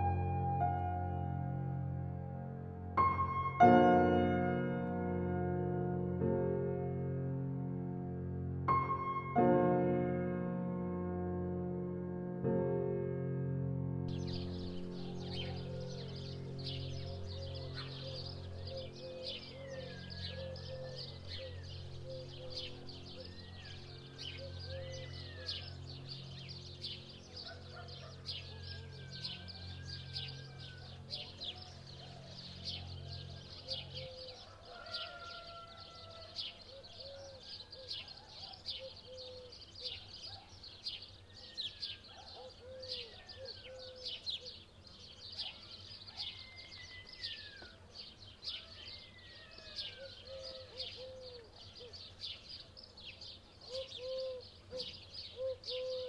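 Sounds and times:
songbirds chirping: 0:14.1 - 0:56.0.

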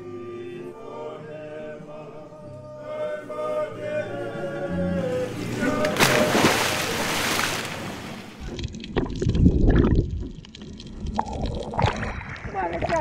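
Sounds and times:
underwater bubbling and sloshing: 0:05.0 - 0:13.0
water rushing and splashing: 0:05.0 - 0:13.0.

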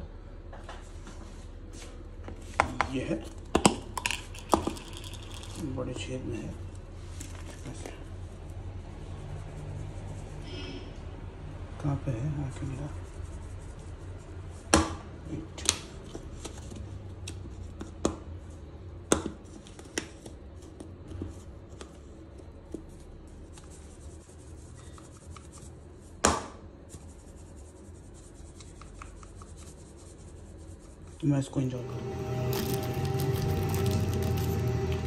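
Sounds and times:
faint low hum: 0:00.0 - 0:19.0
small objects clicking: 0:04.0 - 0:05.7.

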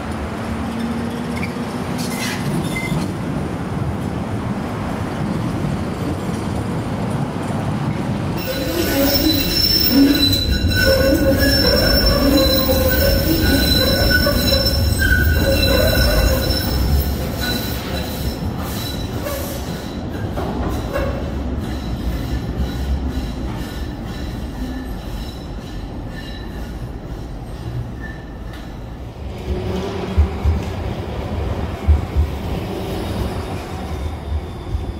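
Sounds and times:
tram wheels squealing: 0:00.7 - 0:03.2, 0:08.4 - 0:30.5, 0:32.6 - 0:34.9.

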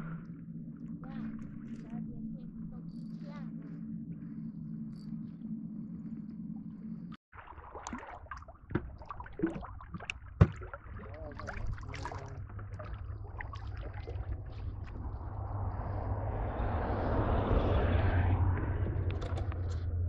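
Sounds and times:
low rumble: 0:00.0 - 0:07.2, 0:10.9 - 0:20.0
steady low hum: 0:00.0 - 0:07.2.

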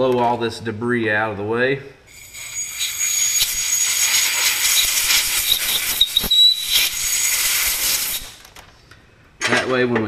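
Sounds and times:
compressed air blow gun hissing: 0:02.1 - 0:08.4
thin whistle: 0:02.1 - 0:08.4.

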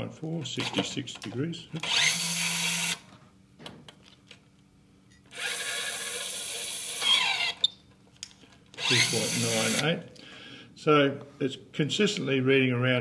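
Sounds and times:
electric screwdriver running: 0:01.8 - 0:03.0, 0:05.3 - 0:07.6, 0:08.8 - 0:09.9.

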